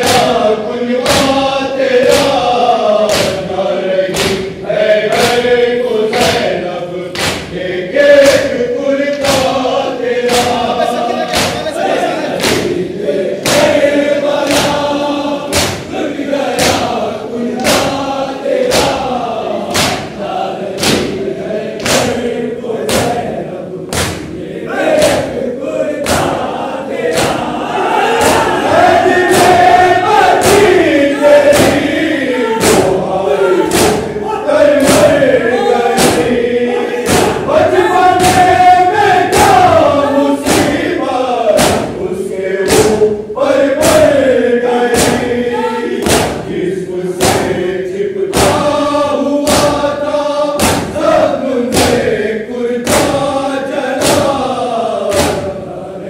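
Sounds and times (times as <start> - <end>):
lead reciter chanting: 0.0 - 56.0
men chanting in unison: 0.0 - 56.0
hands striking chests: 7.1 - 7.5, 11.3 - 11.8, 19.7 - 20.2.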